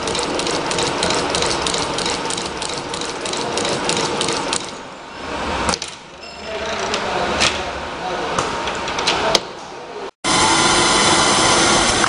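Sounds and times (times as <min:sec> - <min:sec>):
machinery rapid clicking: 0:00.0 - 0:04.8.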